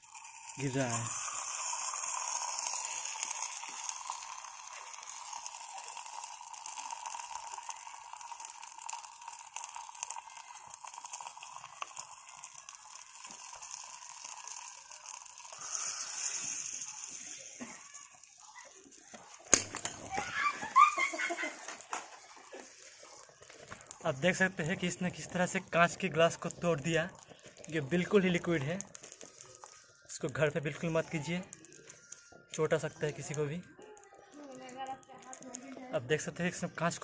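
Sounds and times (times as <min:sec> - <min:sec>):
burning liquid hissing and crackling: 0:00.0 - 0:37.0
sharp crack: 0:19.4 - 0:20.2.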